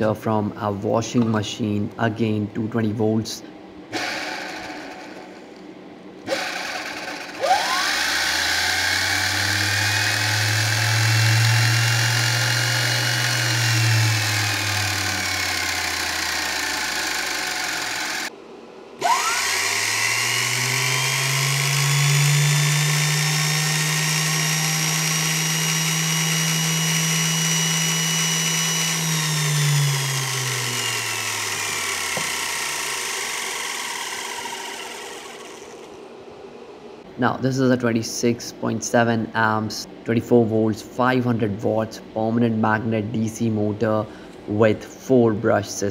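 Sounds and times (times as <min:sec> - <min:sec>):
electric motor whining: 0:06.3 - 0:18.3, 0:19.0 - 0:36.0.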